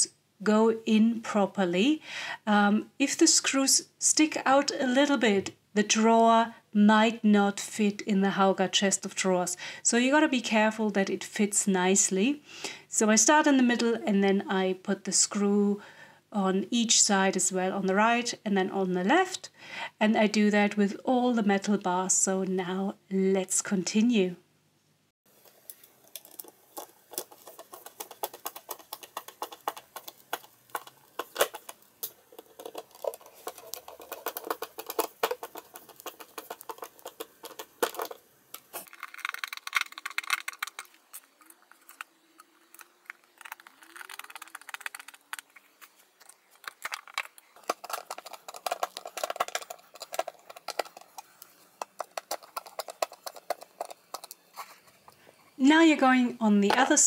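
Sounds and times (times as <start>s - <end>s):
screws grinding into chipboard: 25.4s - 45.9s
screwdriver clicking and rattling metal: 25.5s - 42.0s, 46.6s - 54.4s.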